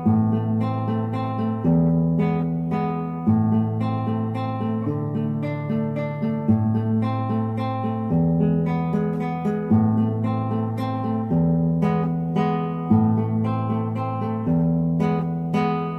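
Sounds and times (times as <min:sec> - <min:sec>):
plucked acoustic guitar: 0:00.0 - 0:15.9.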